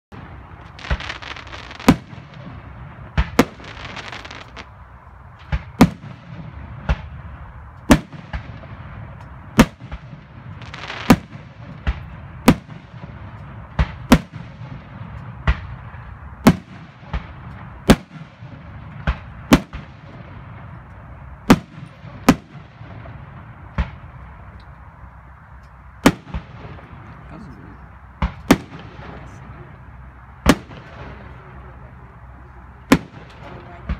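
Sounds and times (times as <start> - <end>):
firework booms: 0.1 - 4.8, 5.4 - 24.5, 26.0 - 27.5, 28.1 - 31.9, 32.8 - 33.9
firework hissing: 0.4 - 4.7.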